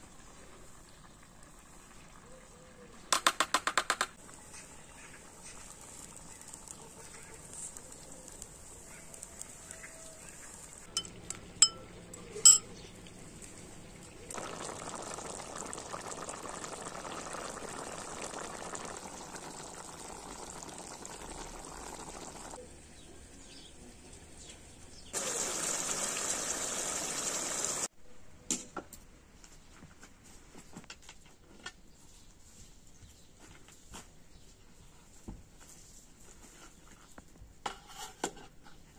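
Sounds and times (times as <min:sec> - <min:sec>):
stew simmering and bubbling: 0:00.0 - 0:23.5, 0:24.1 - 0:27.9.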